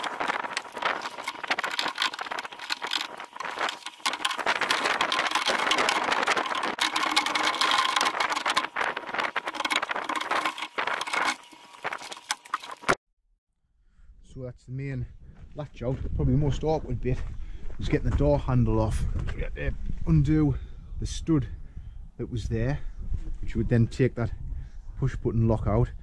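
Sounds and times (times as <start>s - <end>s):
tools and metal parts rattling: 0.0s - 13.0s.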